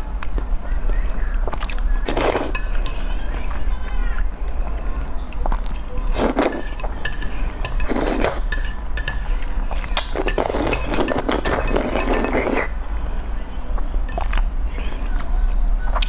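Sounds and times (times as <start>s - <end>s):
noodles being slurped: 1.5s - 3.6s, 5.8s - 12.7s
chopsticks clinking against bowl: 2.1s - 3.0s, 6.2s - 12.7s.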